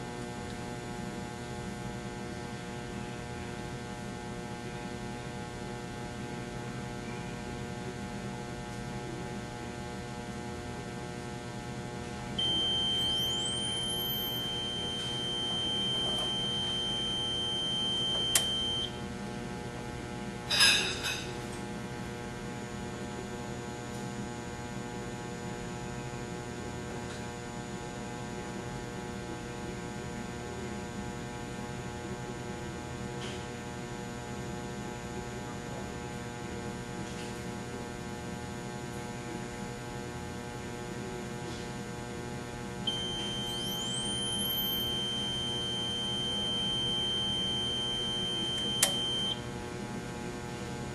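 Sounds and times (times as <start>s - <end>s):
electrical hum and buzz: 0.0s - 50.9s
high tone: 12.4s - 18.9s, 42.9s - 49.4s
switch click: 48.6s - 49.1s.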